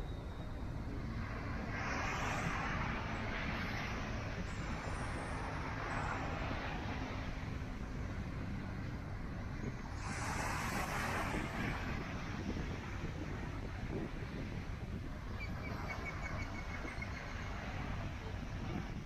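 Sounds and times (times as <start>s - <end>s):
wind buffeting microphone: 0.0s - 19.0s
waves breaking on sand: 9.8s - 14.6s.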